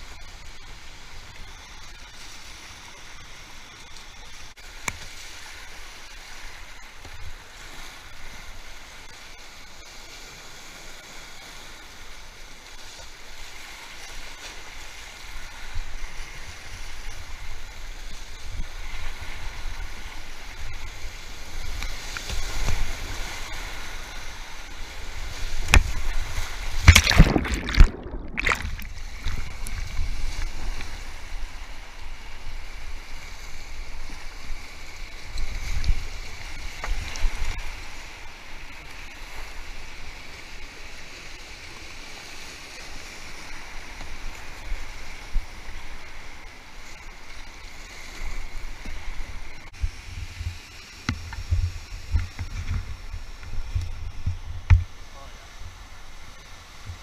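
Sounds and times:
rushing whitewater: 0:05.6 - 0:52.2
heavy water splashes: 0:18.8 - 0:46.8.

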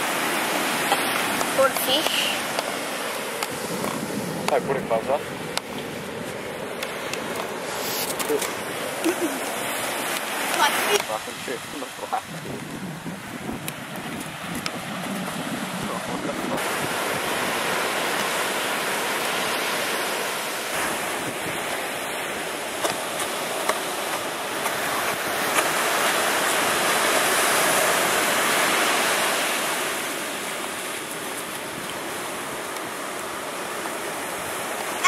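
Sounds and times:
ocean surf breaking: 0:00.0 - 0:35.0
wind on microphone: 0:03.4 - 0:18.5, 0:20.7 - 0:22.2.

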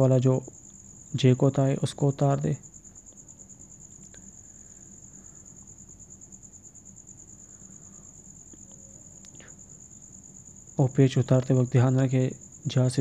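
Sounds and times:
high-pitched insect trill: 0:00.0 - 0:13.0
low steady hum: 0:00.0 - 0:13.0
faint click: 0:08.5 - 0:09.6.

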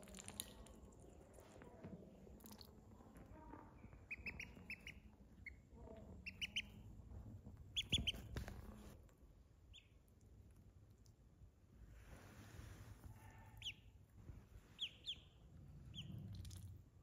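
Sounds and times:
duckling peeping: 0:03.9 - 0:06.9, 0:07.6 - 0:08.5, 0:09.6 - 0:10.2, 0:13.5 - 0:14.0, 0:14.8 - 0:16.6.

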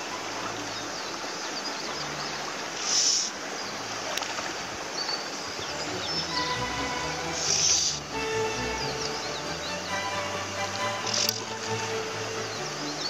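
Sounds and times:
fish splashing and thrashing: 0:10.7 - 0:11.8.

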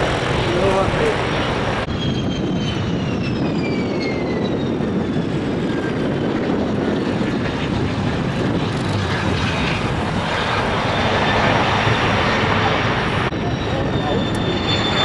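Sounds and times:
aircraft engine rumble with whine: 0:00.0 - 0:15.0.

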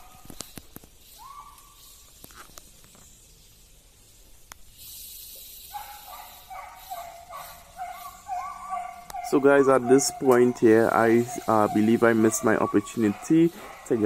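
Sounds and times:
dogs yelping: 0:01.2 - 0:01.8, 0:05.7 - 0:14.0.

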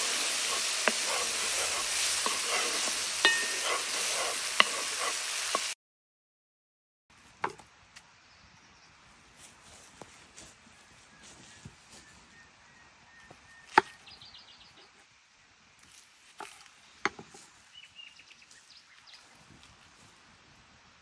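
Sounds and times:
birds chirping: 0:10.7 - 0:15.0, 0:17.6 - 0:19.4.

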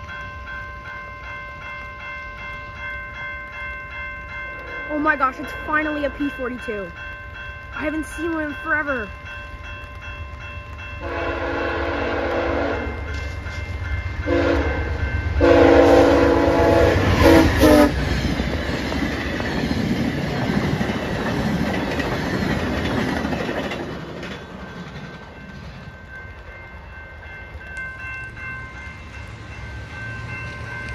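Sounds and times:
crossing warning bell ringing: 0:00.0 - 0:30.9
rumble and clatter of passing train: 0:00.0 - 0:30.9
train horn blasts: 0:11.0 - 0:13.0, 0:14.2 - 0:18.0.

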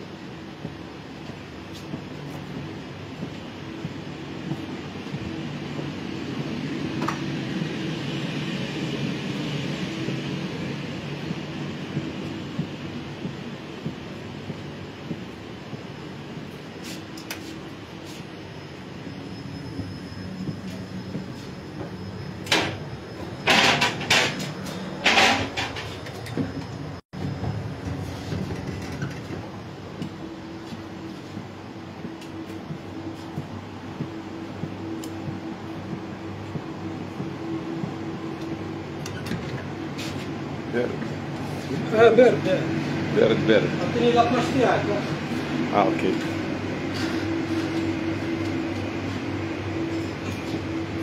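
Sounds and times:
train coach hum and rumble: 0:00.0 - 0:51.0
train doors sliding and knocking: 0:20.5 - 0:34.0, 0:36.0 - 0:40.3.

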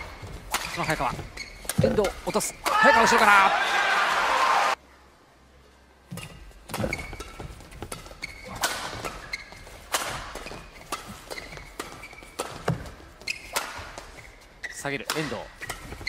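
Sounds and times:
shoes squeaking on court floor: 0:00.0 - 0:02.6, 0:06.1 - 0:16.0
rackets hitting shuttlecock: 0:06.1 - 0:14.1, 0:15.0 - 0:16.0.

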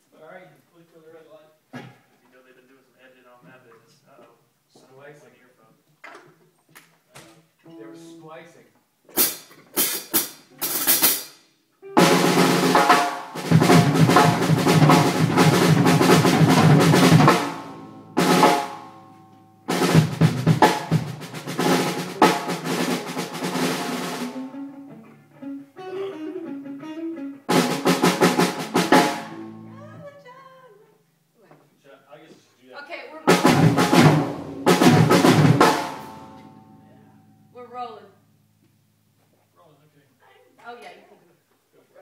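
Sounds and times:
drum fills and rolls: 0:09.2 - 0:11.3, 0:12.0 - 0:19.0, 0:19.6 - 0:24.7, 0:27.4 - 0:29.5, 0:33.3 - 0:36.5
electric guitar and bass chords: 0:13.5 - 0:30.2, 0:33.5 - 0:38.6.

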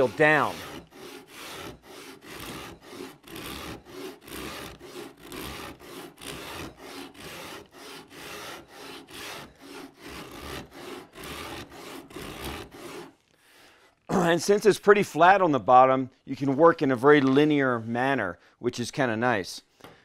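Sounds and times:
rasp scraping wood: 0:00.0 - 0:13.9.

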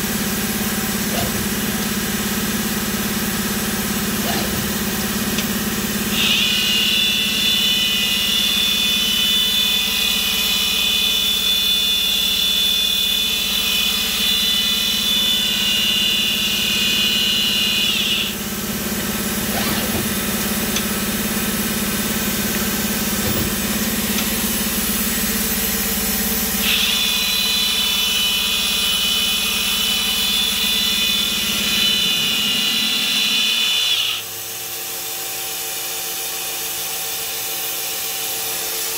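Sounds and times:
machine low hum: 0:00.0 - 0:07.1, 0:18.0 - 0:26.4
high motor whine: 0:00.4 - 0:09.7.

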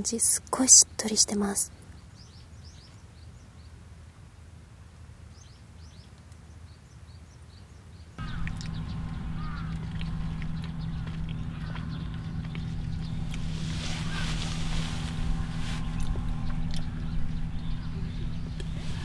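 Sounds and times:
small bird chirps: 0:06.7 - 0:19.0
steady low hum: 0:08.2 - 0:19.0.

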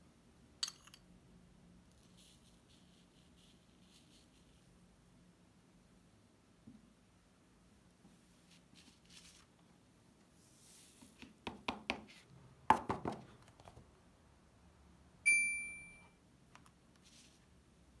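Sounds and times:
bell-like chime: 0:15.3 - 0:16.1.

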